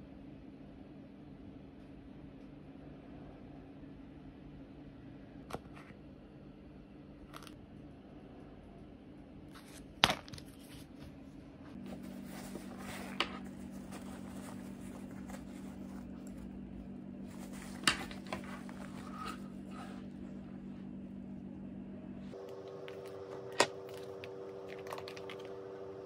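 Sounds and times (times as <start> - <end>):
steady low hum: 0.0 - 26.0
handling packet and fabric pouch: 11.8 - 16.6, 17.2 - 20.5.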